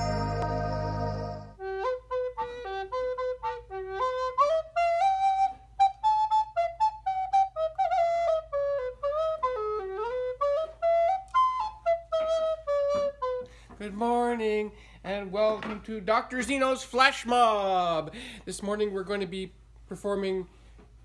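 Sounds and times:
recorder melody: 0:00.0 - 0:13.7.

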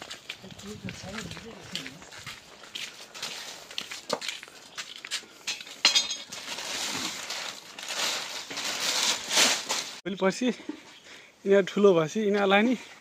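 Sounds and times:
plastic sack rustling: 0:06.0 - 0:10.0.

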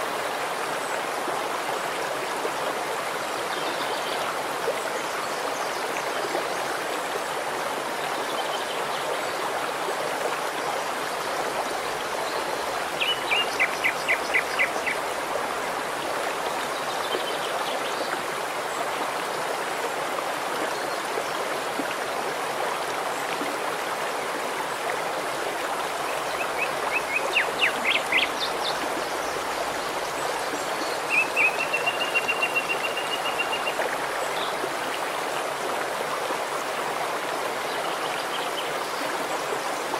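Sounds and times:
stream rushing over stones: 0:00.0 - 0:39.9
songbird calling: 0:30.8 - 0:33.8.

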